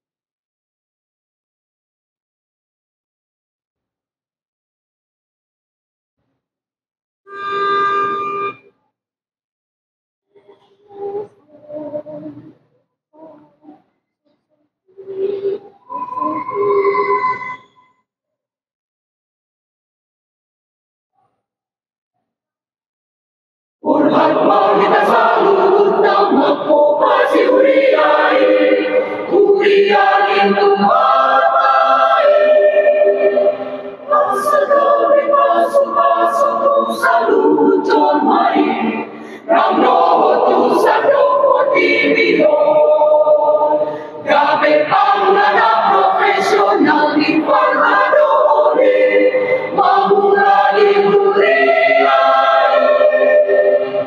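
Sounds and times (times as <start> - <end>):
mixed choir singing a hymn: 23.8 - 54.0.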